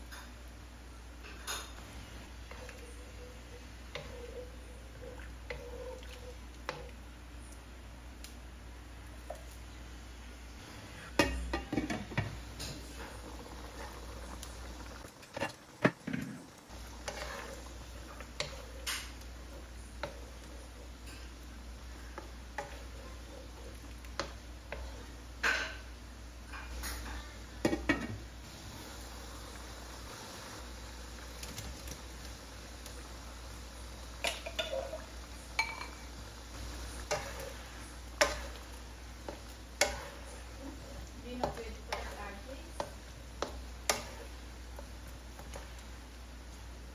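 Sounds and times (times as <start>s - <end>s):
wooden spatula scraping: 1.6s - 7.0s, 11.7s - 25.9s, 36.5s - 46.7s.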